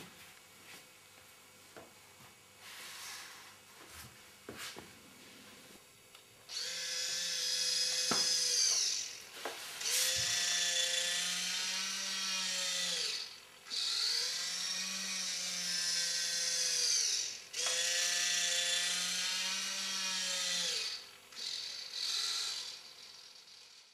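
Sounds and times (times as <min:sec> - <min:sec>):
small electric motor whining: 0:06.5 - 0:23.9.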